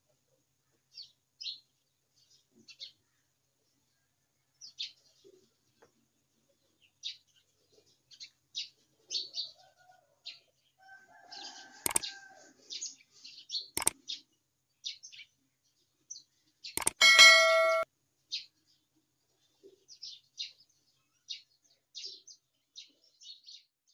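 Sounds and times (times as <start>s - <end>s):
small birds chirping: 0.1s - 17.6s, 18.2s - 23.9s
sharp clicks: 11.9s - 12.1s, 13.8s - 14.0s, 16.8s - 17.8s
bell-like ding: 16.9s - 17.9s.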